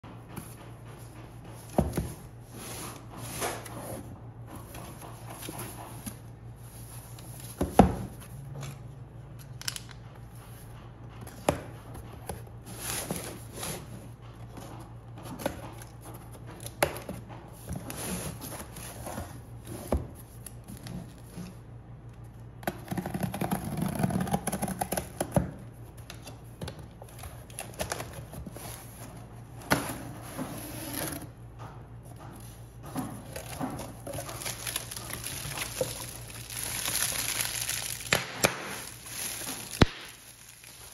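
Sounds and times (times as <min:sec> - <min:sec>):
packaging rustling and tearing: 0:33.3 - 0:40.9.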